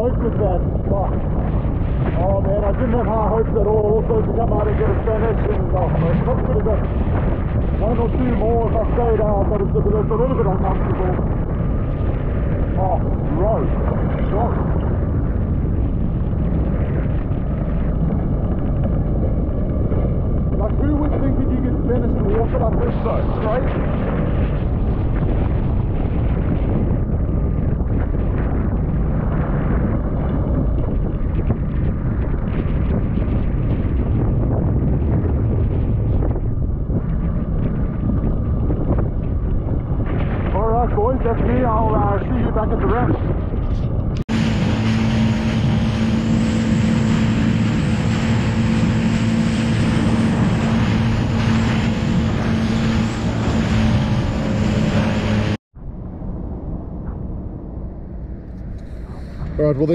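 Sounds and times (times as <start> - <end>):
choppy sea wash: 0.0 - 57.9
wind buffeting microphone: 0.0 - 59.9
jet ski engine running: 44.3 - 55.6.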